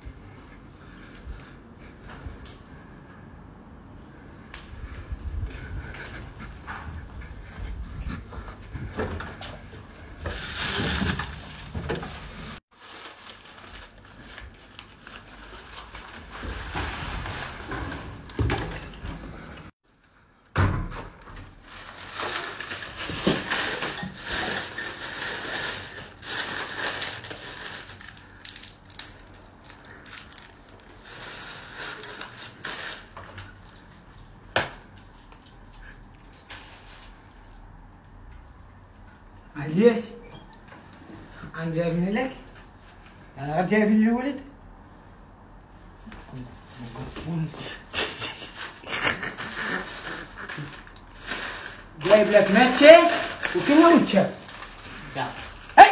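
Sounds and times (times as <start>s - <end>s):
plastic bag rustling: 10.0s - 18.4s, 21.4s - 33.9s, 48.4s - 55.9s.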